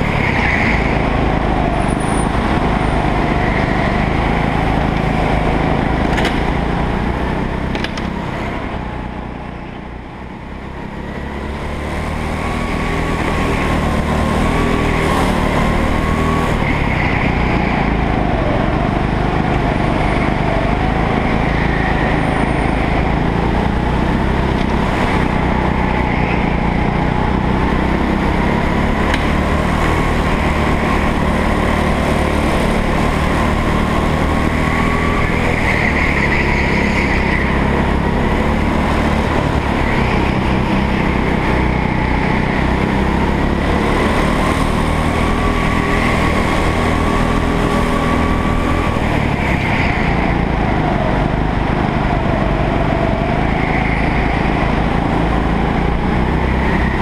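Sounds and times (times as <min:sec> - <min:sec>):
go-kart engine racing: 0:00.0 - 0:57.0.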